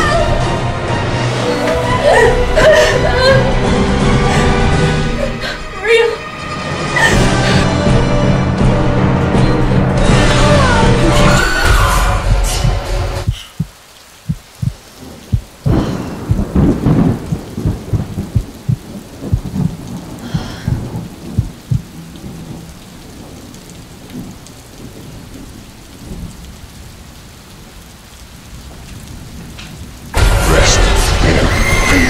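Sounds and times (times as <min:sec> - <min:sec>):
rain falling: 0:00.0 - 0:32.0
thunder cracking and rumbling: 0:10.1 - 0:26.9.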